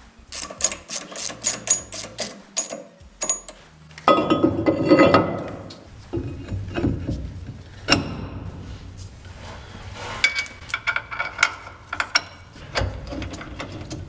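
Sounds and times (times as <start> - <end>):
ratchet wrench clicking: 0.3 - 3.6
metal clatter: 0.4 - 8.8, 10.2 - 14.0.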